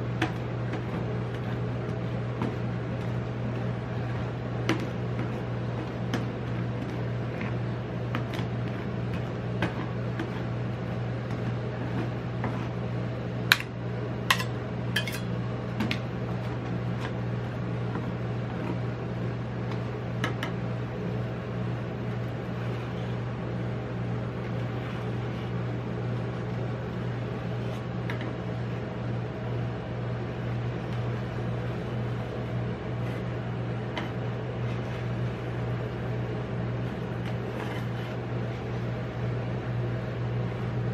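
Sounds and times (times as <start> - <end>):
machine low hum: 0.0 - 40.9
metal spatula tapping on steel: 14.3 - 15.2.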